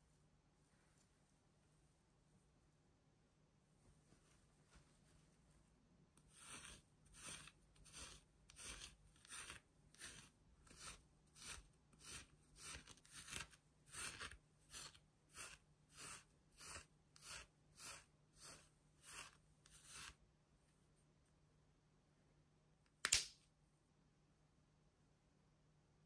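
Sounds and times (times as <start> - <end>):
comb brushing through doll hair: 6.2 - 20.2.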